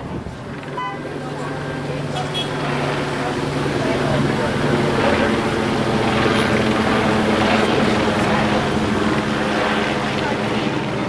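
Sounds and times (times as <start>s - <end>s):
helicopter engine and rotor drone: 0.0s - 11.0s.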